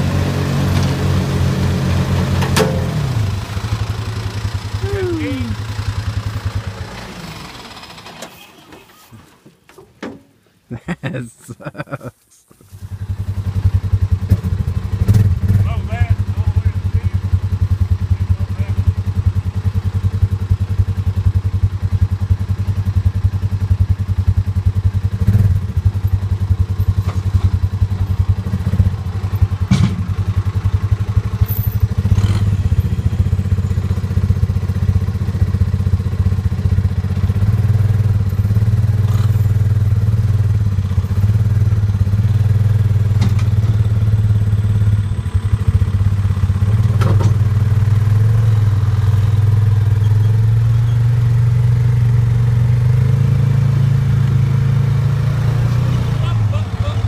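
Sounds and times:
engines running: 0:00.0 - 0:09.5, 0:12.7 - 0:57.0
metal knocks and clanks: 0:02.4 - 0:03.1, 0:29.7 - 0:30.2.

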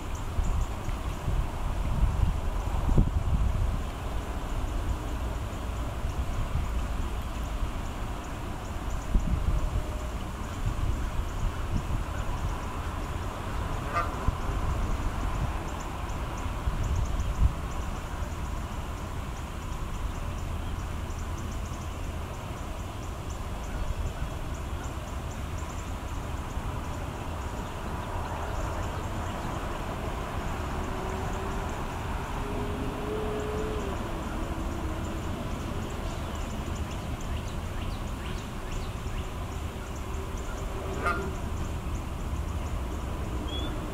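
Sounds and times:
low rumble with hiss: 0:00.0 - 0:43.9
wavering drawn-out call: 0:13.8 - 0:14.3, 0:30.8 - 0:36.0, 0:39.9 - 0:41.7.

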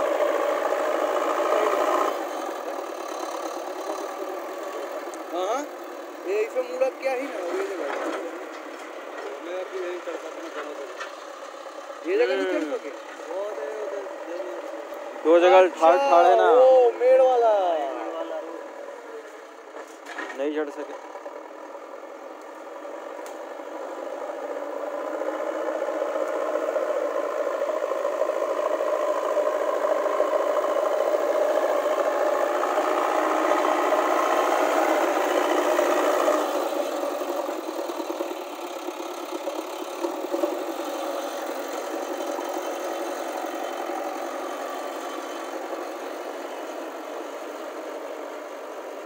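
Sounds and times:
diesel engine running: 0:00.0 - 0:49.0.

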